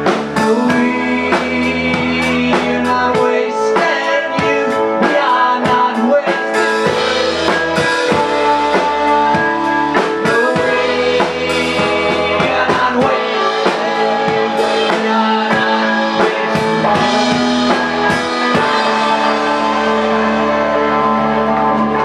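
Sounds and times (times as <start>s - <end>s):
man singing: 0.0s - 21.2s
live rock band playing: 0.0s - 22.0s.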